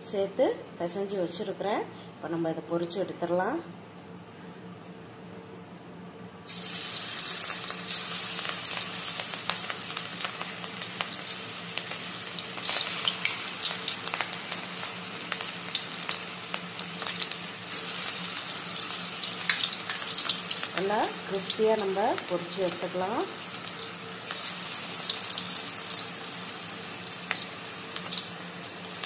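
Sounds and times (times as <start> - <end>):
food deep-frying in oil: 6.5 - 29.0.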